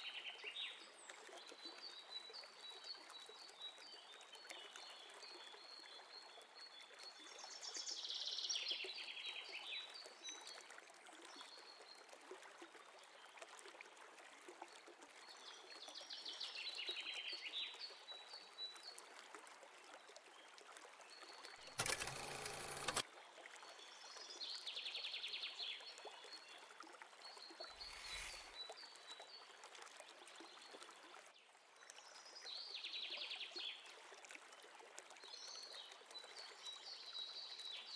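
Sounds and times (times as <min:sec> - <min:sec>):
running water hiss: 0:27.6 - 0:29.0.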